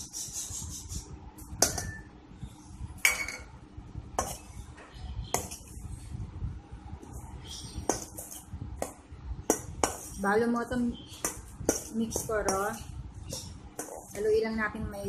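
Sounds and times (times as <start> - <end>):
spoon clinking against bowl: 1.6 - 2.1
spoon scraping metal bowl: 11.7 - 14.3.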